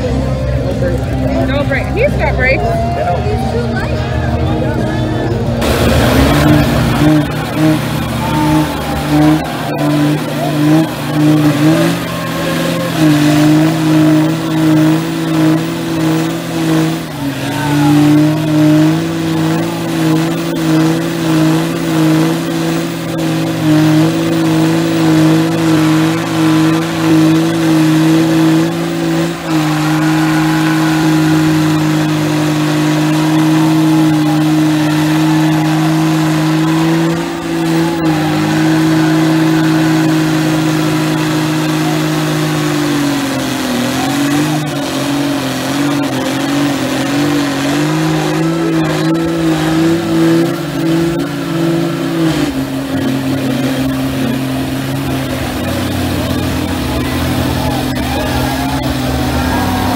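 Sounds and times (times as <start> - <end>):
truck engines revving high: 0.0 - 59.9.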